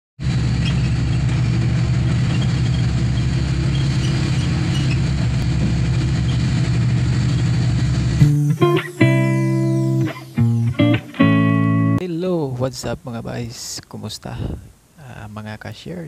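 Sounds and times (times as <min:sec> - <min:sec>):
vehicle engine and road noise: 0:00.2 - 0:08.3.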